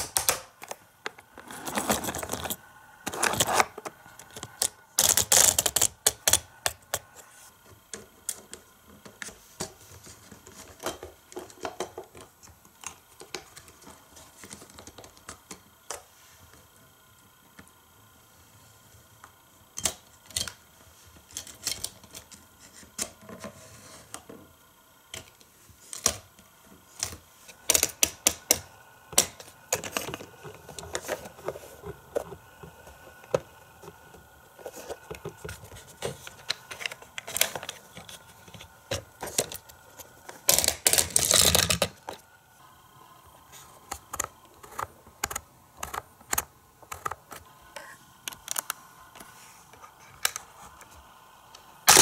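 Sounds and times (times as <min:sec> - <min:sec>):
toy parts clicking and clattering: 0:26.9 - 0:34.0, 0:34.6 - 0:42.2.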